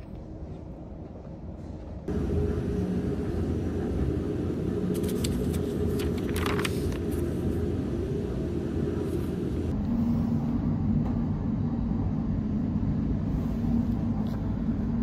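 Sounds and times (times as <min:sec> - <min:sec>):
ship engines rumbling and humming: 0:00.0 - 0:15.0
paper pages rustling: 0:04.9 - 0:07.5.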